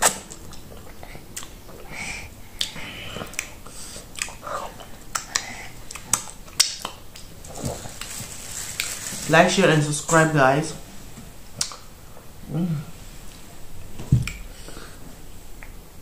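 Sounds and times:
person chewing food: 0.0s - 1.9s, 2.5s - 9.0s
wet lip smacks: 5.1s - 7.3s.

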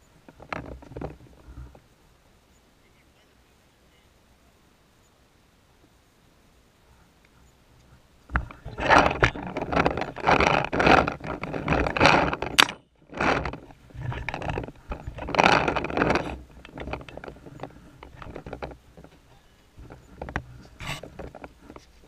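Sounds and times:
rattling and scraping handling noise: 0.2s - 1.8s, 8.3s - 22.0s.

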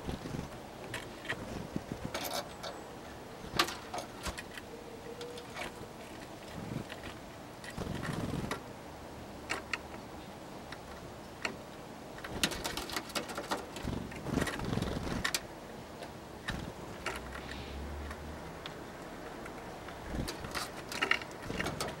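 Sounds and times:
birds tapping on wood: 3.5s - 8.6s, 9.5s - 22.0s
bird wing flutters: 12.3s - 15.4s.

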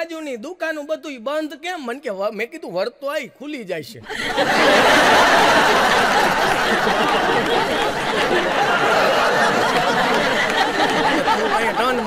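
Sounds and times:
audience laughing: 4.0s - 12.0s.

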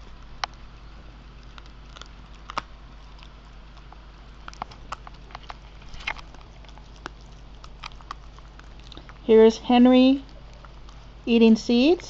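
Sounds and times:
dog cracking seed shells: 1.3s - 9.3s.

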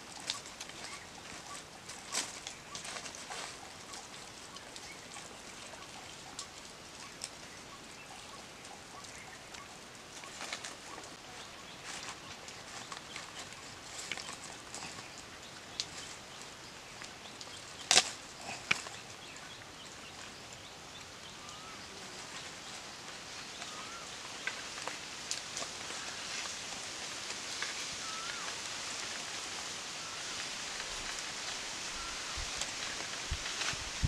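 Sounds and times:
leaves rustling: 0.0s - 34.0s
sharp crack: 17.8s - 18.8s.

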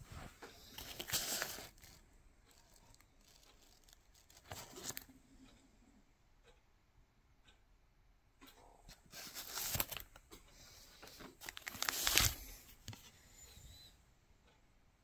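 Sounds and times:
plastic sleeves rustling: 0.0s - 5.1s, 9.1s - 10.2s, 11.0s - 13.1s.

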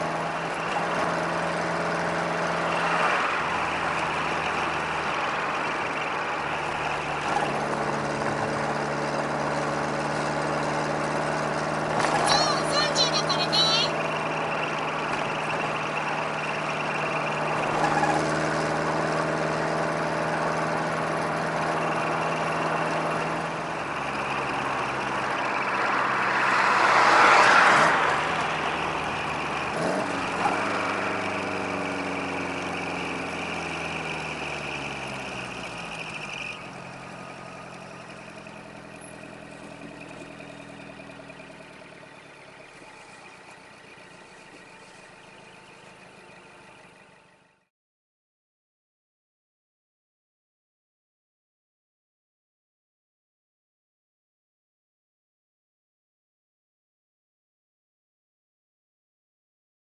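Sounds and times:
truck engine rumbling: 0.0s - 47.7s.

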